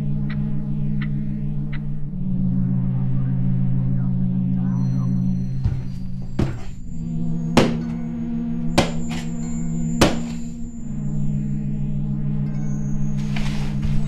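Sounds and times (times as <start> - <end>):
low musical drone: 0.0 - 14.0
shoe slammed onto concrete floor: 5.6 - 6.7.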